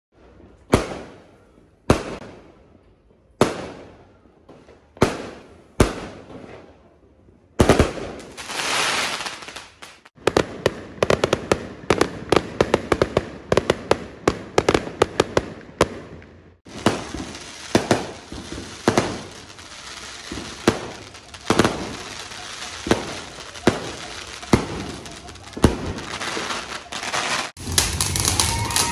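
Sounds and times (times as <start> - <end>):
firework bangs with echoes: 0.5 - 2.6, 3.4 - 6.7, 7.6 - 28.9
firework hissing: 8.0 - 10.2, 16.7 - 28.9.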